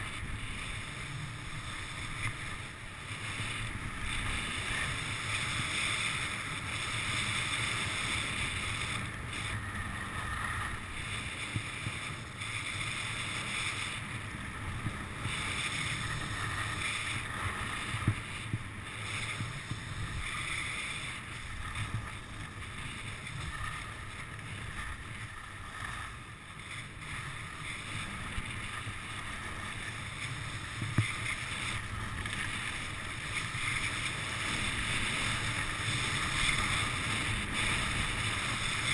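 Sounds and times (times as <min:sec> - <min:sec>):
skis scraping over snow: 0:00.0 - 0:38.9
wind on microphone: 0:00.0 - 0:38.9.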